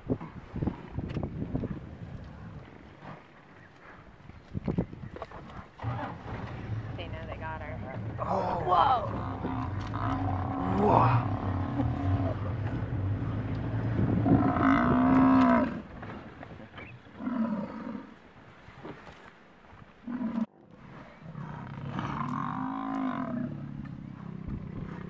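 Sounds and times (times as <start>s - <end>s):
buffalo bellowing in distress: 8.2s - 13.2s, 14.0s - 15.8s.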